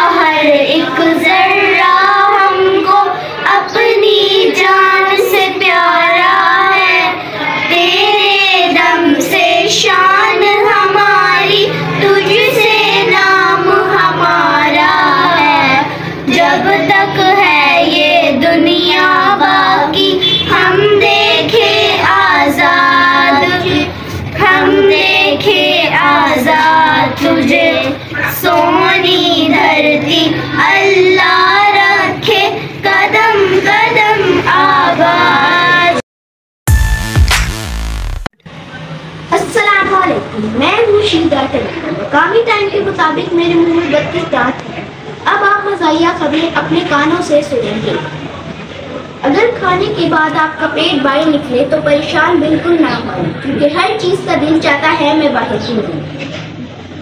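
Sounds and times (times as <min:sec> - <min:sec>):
children singing: 0:00.0 - 0:36.0.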